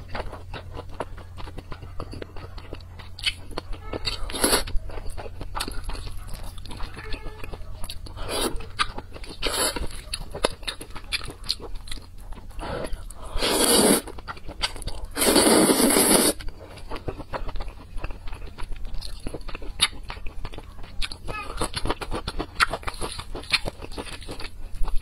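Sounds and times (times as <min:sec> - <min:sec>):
wet chewing and mouth clicks: 0:00.0 - 0:25.0
slurping noodles: 0:08.2 - 0:09.9, 0:12.6 - 0:16.5.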